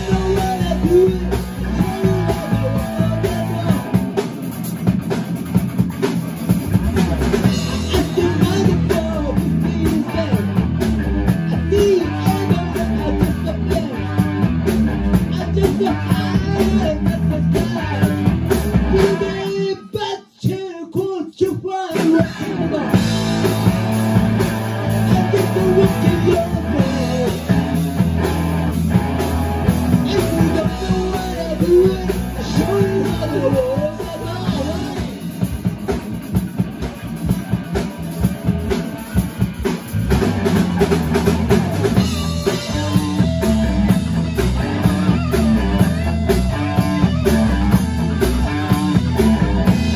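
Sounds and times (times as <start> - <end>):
man singing lead vocal: 0.0 - 4.3, 7.5 - 23.5, 24.8 - 28.2, 29.8 - 35.7, 41.9 - 44.0
rock band playing: 0.0 - 49.9.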